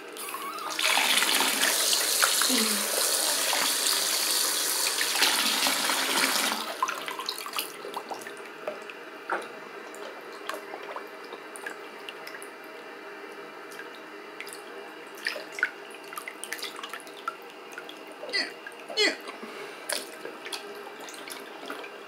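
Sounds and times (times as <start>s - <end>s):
tap water running into basin: 0.0s - 12.7s, 19.9s - 22.0s
water splashing and sloshing: 6.8s - 12.8s, 13.6s - 22.0s.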